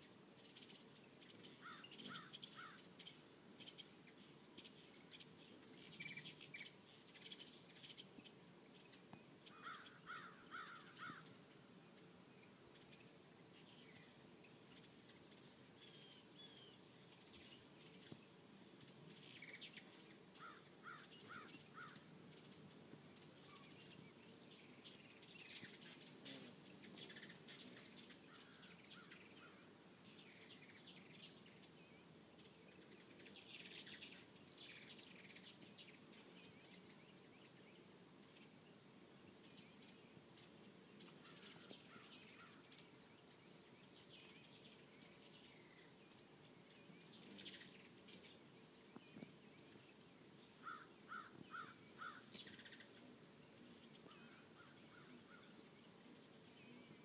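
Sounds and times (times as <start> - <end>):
hummingbird chips and chatter: 4.6 - 8.1, 18.8 - 31.8, 32.7 - 37.0, 39.5 - 43.0, 46.8 - 48.5, 50.6 - 57.0.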